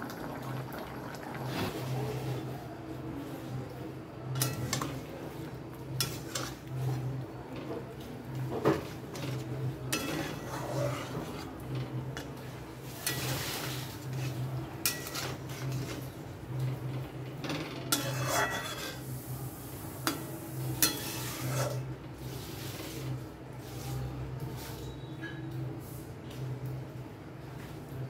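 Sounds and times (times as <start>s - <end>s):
metal ladle stirring curry: 8.8s - 16.2s.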